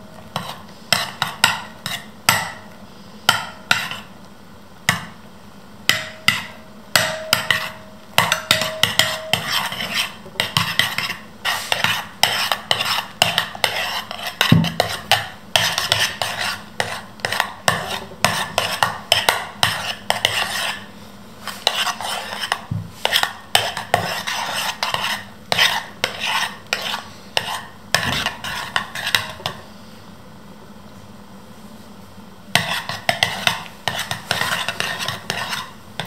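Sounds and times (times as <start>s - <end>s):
metal spoon scraping ceramic bowl: 6.3s - 20.9s, 21.5s - 29.5s, 32.6s - 35.8s.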